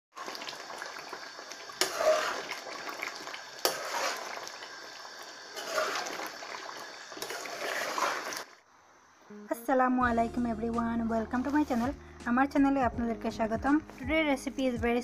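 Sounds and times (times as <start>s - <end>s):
water running and splashing: 0.1s - 8.6s.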